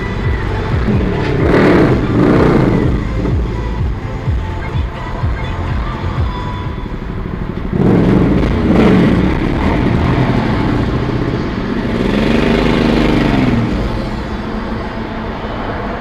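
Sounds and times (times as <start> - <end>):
vehicle engine revving: 0.0 - 4.8, 5.4 - 16.0.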